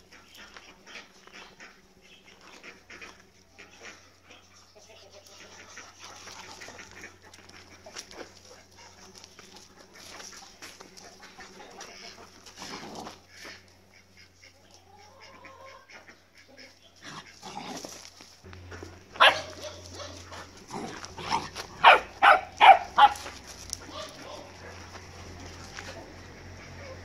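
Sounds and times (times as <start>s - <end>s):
dog barking: 19.2s - 20.5s, 21.2s - 24.8s.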